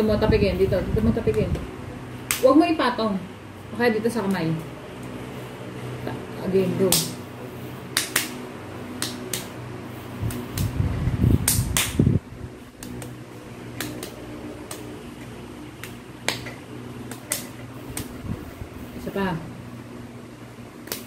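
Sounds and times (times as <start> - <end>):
fan-like hum: 0.0 - 21.0
child clapping and patting: 7.9 - 8.4, 9.0 - 9.5, 11.4 - 12.1, 15.8 - 16.5
low rumbling noise: 17.7 - 20.4.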